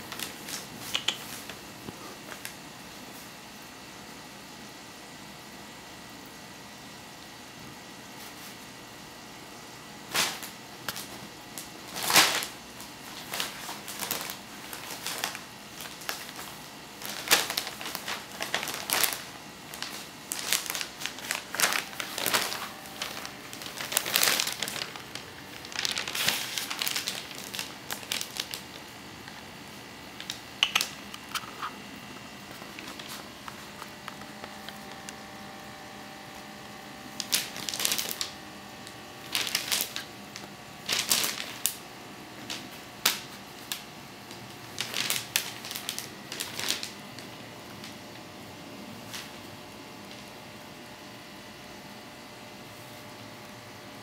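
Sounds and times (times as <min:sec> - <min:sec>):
wrapping paper crinkling: 0:00.0 - 0:02.6, 0:10.1 - 0:36.4, 0:37.1 - 0:41.8, 0:42.4 - 0:47.9.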